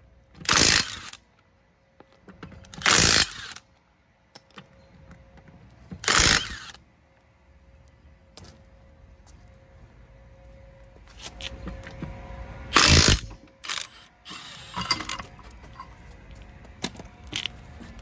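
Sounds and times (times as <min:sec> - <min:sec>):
impact wrench bursts: 0:00.4 - 0:01.2, 0:02.7 - 0:03.6, 0:06.0 - 0:06.8, 0:12.7 - 0:15.2
tool handling clicks and clatter: 0:13.0 - 0:17.6.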